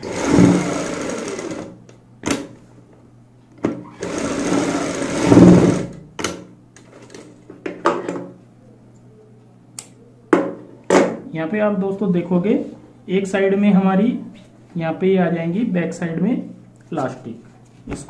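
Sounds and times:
sewing machine stitching: 0.0 - 1.8, 3.9 - 6.0.

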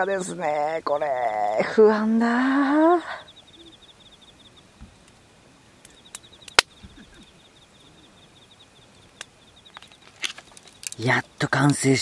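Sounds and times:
faint insect trill: 0.0 - 12.0
wood fire crackling and popping: 4.5 - 12.0.

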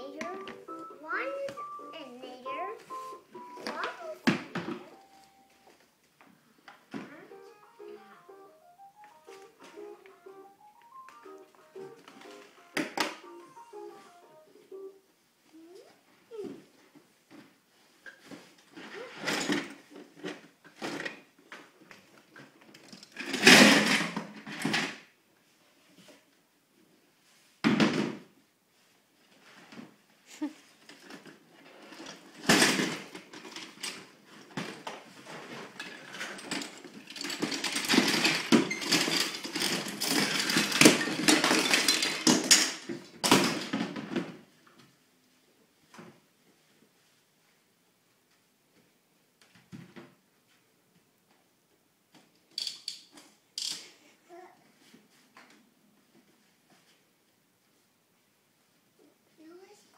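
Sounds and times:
plastic toys rattling into bins: 22.7 - 25.0, 30.9 - 44.4.

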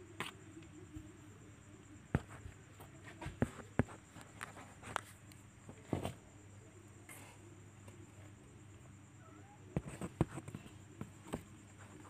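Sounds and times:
kitten paws scratching cardboard: 9.7 - 12.0.

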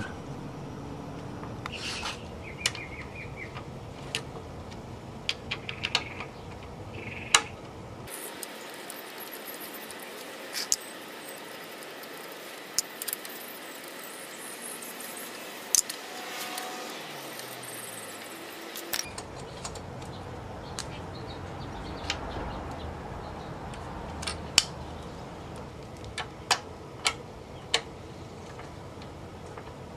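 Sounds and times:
low hum: 0.0 - 2.6
steady hiss: 8.1 - 19.0.

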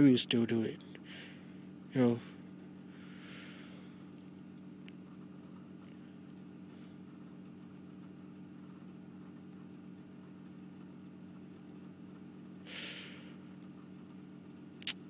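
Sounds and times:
low mechanical hum: 0.0 - 15.0
burst of hiss: 12.7 - 13.2.

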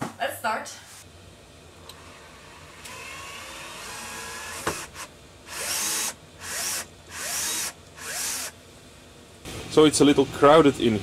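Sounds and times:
drill driving screw into wood: 2.8 - 8.6.

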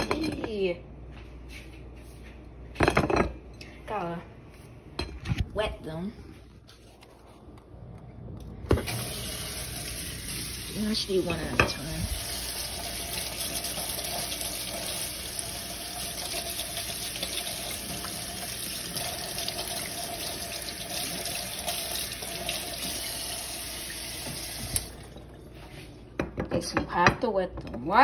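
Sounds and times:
faucet running into steel sink: 8.8 - 25.4.

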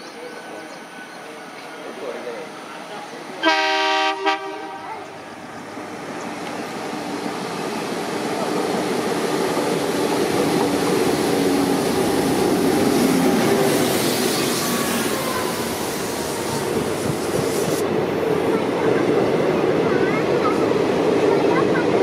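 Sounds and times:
train rumbling: 0.0 - 22.0
diesel locomotive horn: 3.4 - 5.0.

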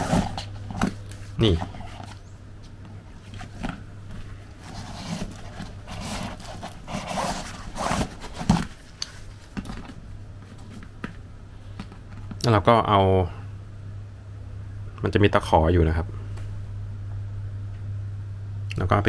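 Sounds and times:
fabric bag scraping and rustling: 0.0 - 0.8, 4.6 - 9.4
zipper being pulled: 4.7 - 8.5.

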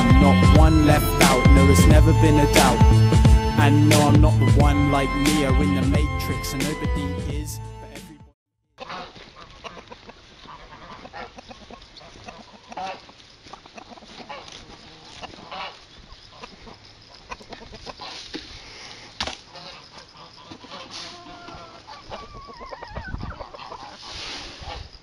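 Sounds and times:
chickens clucking: 8.8 - 25.0.

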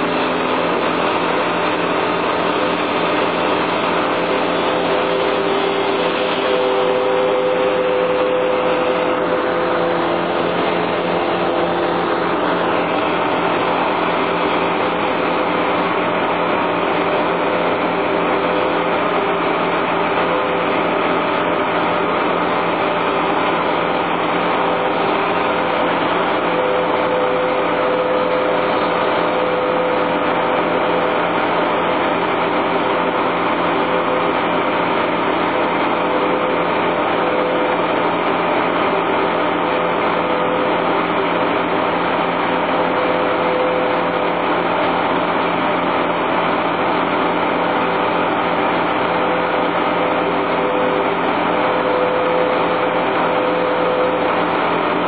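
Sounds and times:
chipper engine running: 0.0 - 55.0.

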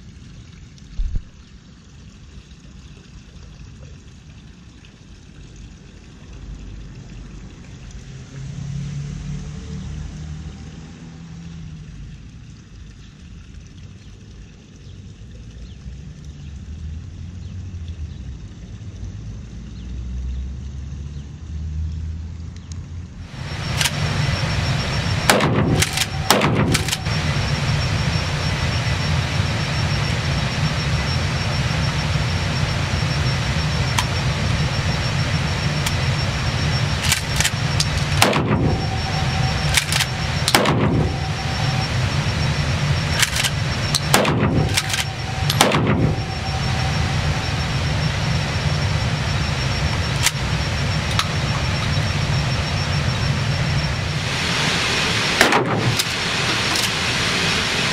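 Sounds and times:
steady low rumble: 0.0 - 3.4, 23.1 - 57.9
shotgun shots echoing indoors: 25.2 - 27.1, 37.1 - 41.7, 43.1 - 46.4, 55.4 - 56.2.

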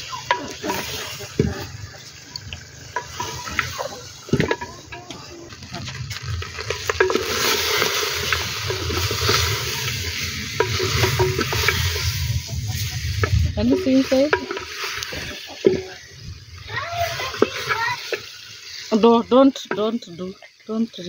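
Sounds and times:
chicken sizzling in pot: 0.0 - 21.0
wooden stick knocking pot: 6.6 - 12.1, 13.2 - 16.0.

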